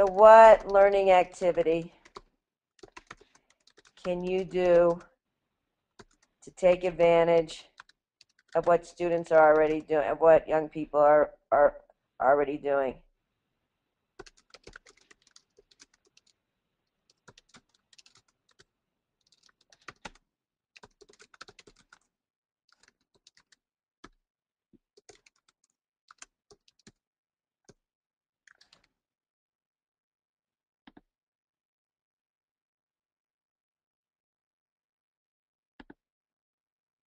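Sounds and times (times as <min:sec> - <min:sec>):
faint typing on keyboard: 0:00.0 - 0:05.1, 0:05.9 - 0:11.0, 0:14.2 - 0:16.4, 0:17.0 - 0:20.2, 0:20.8 - 0:22.1, 0:22.7 - 0:24.2, 0:24.8 - 0:27.0, 0:28.5 - 0:28.9.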